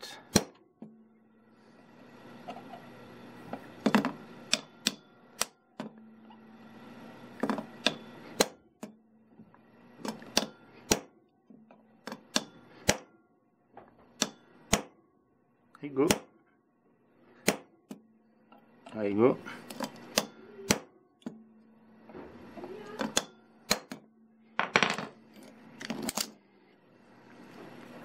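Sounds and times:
hammer tapping steel punch: 3.9 - 6.1, 7.8 - 9.0, 10.0 - 11.1, 11.7 - 13.1, 14.2 - 15.0, 20.1 - 21.4.

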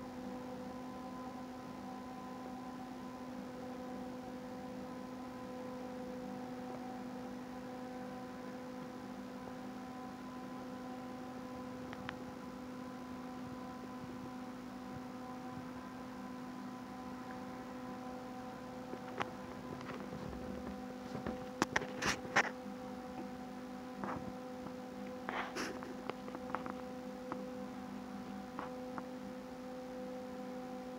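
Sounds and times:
electrical mains hum: 0.0 - 30.9.

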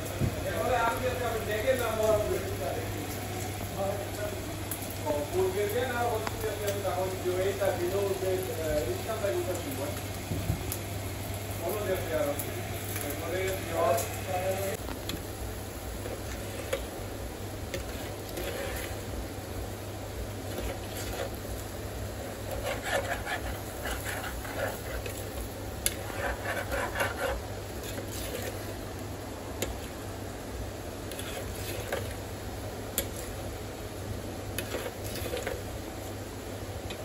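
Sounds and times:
steady low hum: 0.0 - 37.0
spoon stirring in clay pot: 16.0 - 17.0, 17.7 - 19.1, 20.4 - 28.8, 29.6 - 30.0, 31.1 - 32.2, 34.5 - 35.6.

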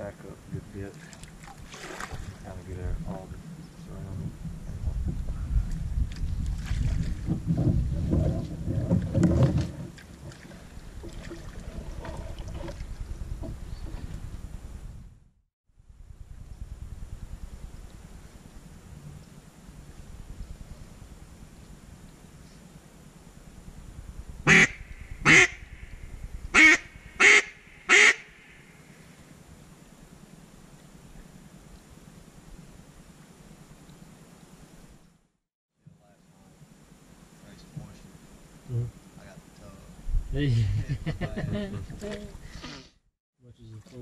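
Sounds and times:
water sloshing and splashing: 0.8 - 2.6, 6.1 - 14.3
low rumble: 2.2 - 9.6, 11.6 - 22.0, 23.3 - 28.6
duck call quacks: 24.5 - 25.6, 26.6 - 28.2.

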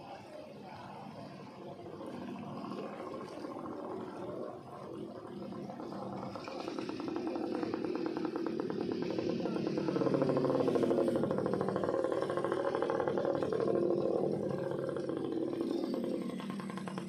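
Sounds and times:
small engine puttering: 1.0 - 17.0.

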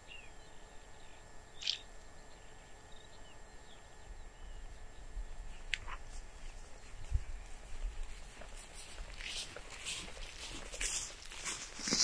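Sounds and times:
bird chirps: 0.0 - 5.7
sharp bird call: 1.6 - 1.9.

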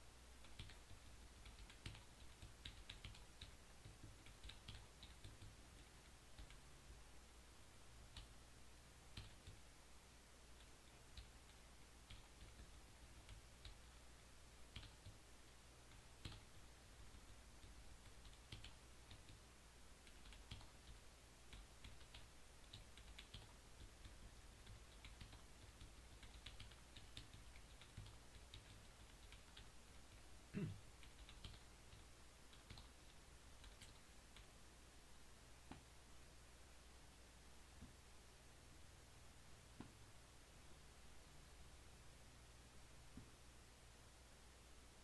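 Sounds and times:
computer clicking: 0.4 - 6.6, 14.7 - 15.2, 15.9 - 19.4, 20.0 - 30.2, 31.0 - 34.5.

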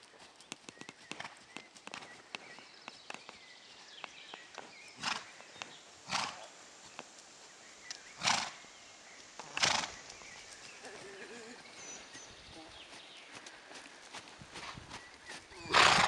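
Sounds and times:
hoofbeats on gravel: 0.0 - 6.4, 9.6 - 16.0
horse snorting: 5.0 - 5.3, 6.0 - 6.5, 8.2 - 8.6, 9.4 - 10.0, 15.6 - 16.0.

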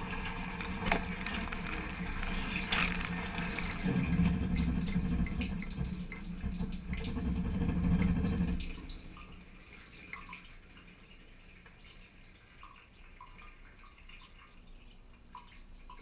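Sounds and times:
water spraying in dishwasher: 0.0 - 8.9
pump hum: 0.0 - 9.6
water dripping: 0.0 - 16.0.

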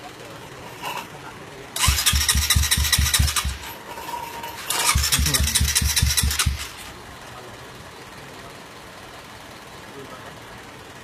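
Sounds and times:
motorcycle engine cranking: 1.8 - 7.0.

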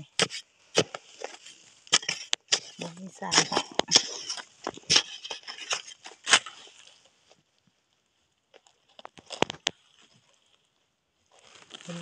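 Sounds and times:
loose dirt crackling and rustling: 0.0 - 12.0
blade scraping into sandy soil: 0.1 - 7.1.

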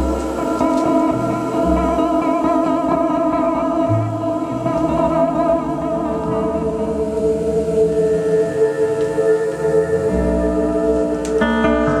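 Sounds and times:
electric guitar improvising: 11.2 - 12.0.

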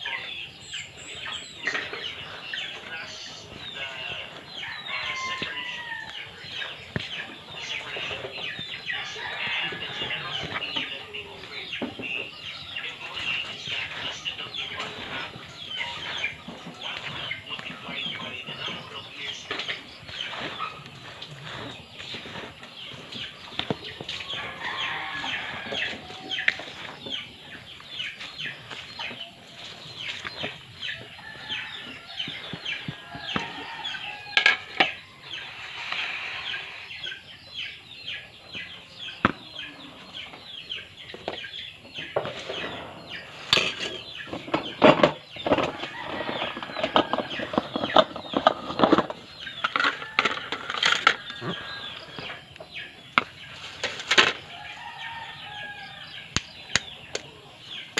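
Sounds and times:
chickens clucking: 0.0 - 57.9
hands rustling in flour bowl: 1.5 - 35.2.

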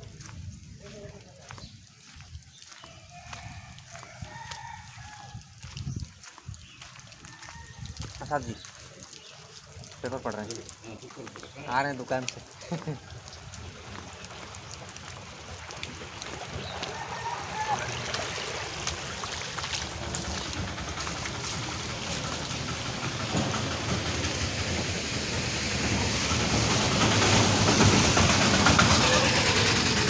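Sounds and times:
light taps and drips: 0.0 - 17.2, 18.0 - 22.6
rainwater rushing across pavement: 0.0 - 30.0.

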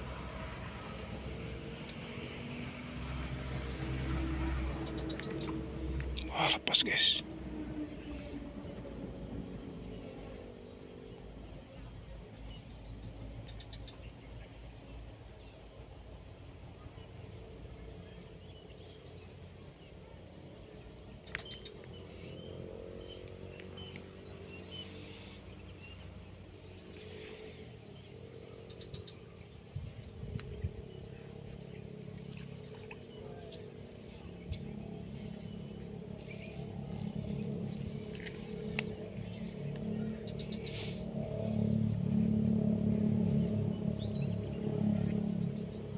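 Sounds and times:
low rumble: 33.8 - 45.9.

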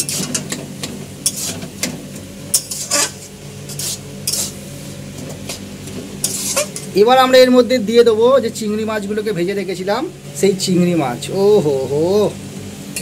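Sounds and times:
spatula scraping mash: 0.0 - 0.5, 1.2 - 1.8, 2.5 - 4.6, 5.5 - 6.9
light sizzle: 0.0 - 7.1.

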